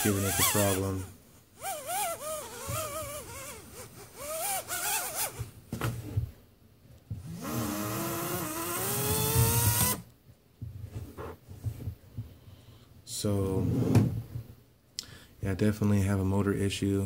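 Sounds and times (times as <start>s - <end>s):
person talking: 0.0s - 1.1s.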